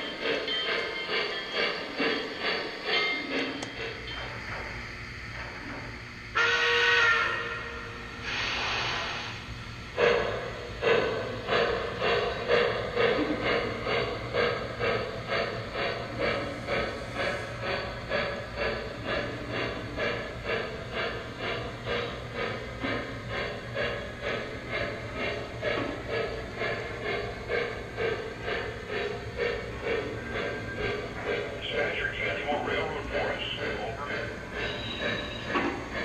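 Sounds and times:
locomotive bell ringing: 0:00.0 - 0:04.6, 0:33.4 - 0:35.7
train rumble: 0:00.0 - 0:36.0
locomotive horn blasts: 0:06.4 - 0:07.8.

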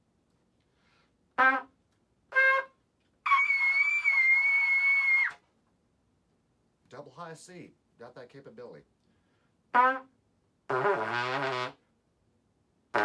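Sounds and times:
trumpet playing high notes: 0:01.4 - 0:05.4, 0:09.7 - 0:10.1, 0:10.7 - 0:11.8.

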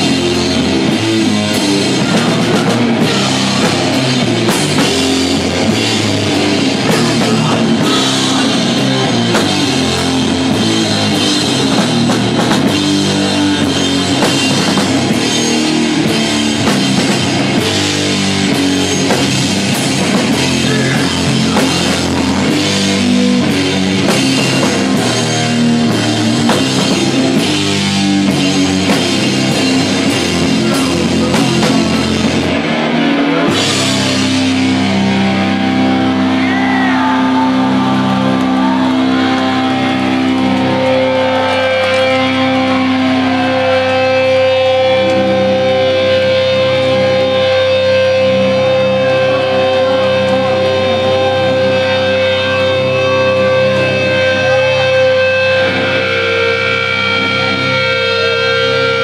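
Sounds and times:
pounding drums and cymbals: 0:00.0 - 0:39.0
metal band playing live: 0:00.0 - 0:59.0.

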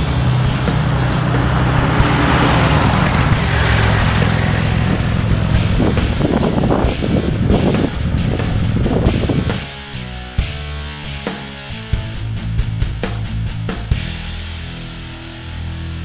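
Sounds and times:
pickup truck driving past: 0:00.0 - 0:09.9
tyre noise: 0:00.0 - 0:09.9.

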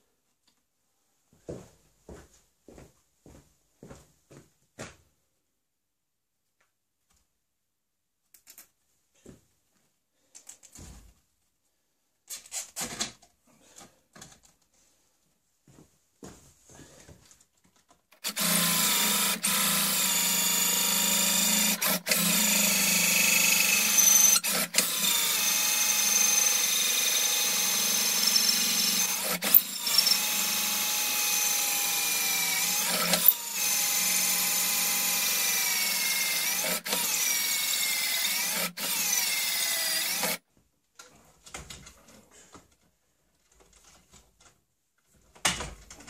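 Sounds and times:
electric drill motor whining: 0:18.2 - 0:40.4.

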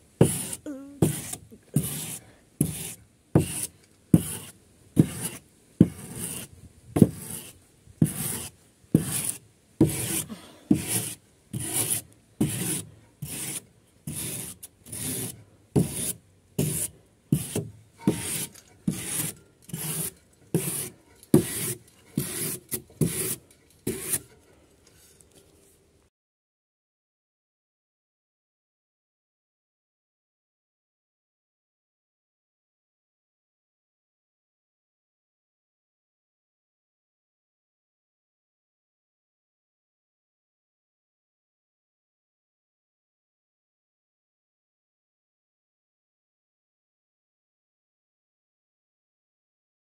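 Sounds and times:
hand tool rasping on wooden boards: 0:00.2 - 0:24.4.

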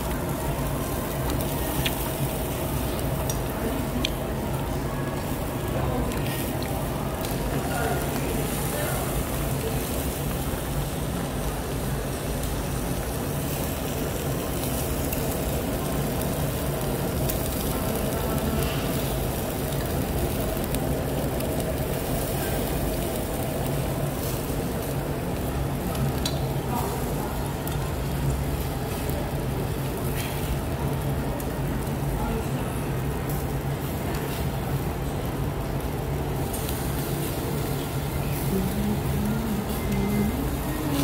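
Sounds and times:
meat sizzling on grill: 0:00.0 - 0:41.0
steady low hum: 0:00.0 - 0:41.0
tongs clicking on grill: 0:26.2 - 0:26.4.

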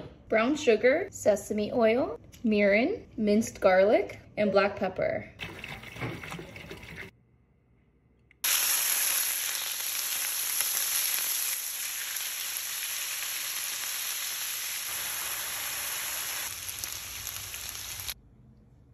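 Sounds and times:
meat sizzling in a skillet: 0:08.4 - 0:18.2.

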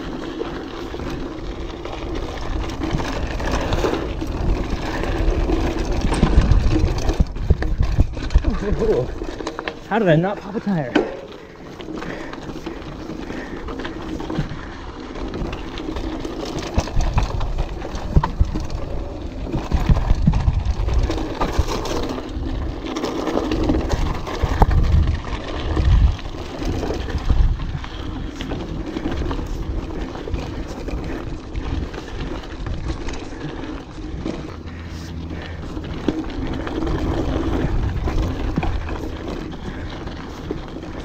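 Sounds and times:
bike clattering over bumps: 0:00.0 - 0:41.0
bike tyres on dirt and rock: 0:00.0 - 0:41.0
wind buffeting microphone: 0:01.0 - 0:09.4, 0:16.7 - 0:22.9, 0:23.5 - 0:41.0.

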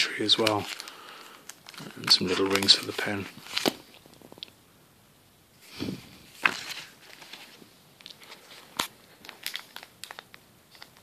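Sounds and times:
cardboard and plastic bag rustling: 0:00.0 - 0:01.0, 0:01.6 - 0:04.4, 0:05.8 - 0:10.2.

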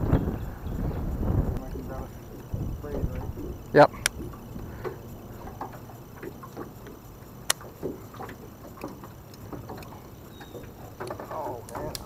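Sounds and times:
low steady wind: 0:00.0 - 0:12.0
water lapping against boat hull: 0:00.0 - 0:12.0.

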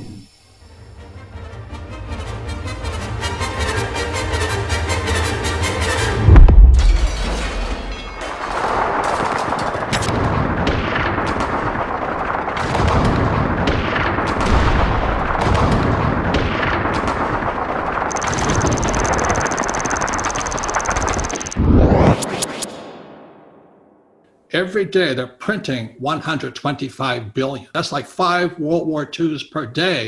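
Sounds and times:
gunfire barrage: 0:06.3 - 0:21.2
high whine: 0:18.1 - 0:23.2.

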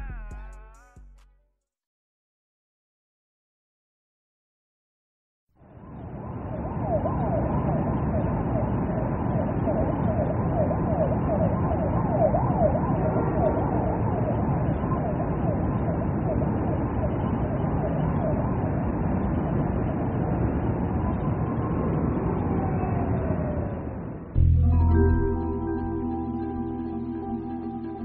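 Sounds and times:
steady rushing noise: 0:05.6 - 0:24.4
siren sweeping up and down: 0:05.6 - 0:28.0.

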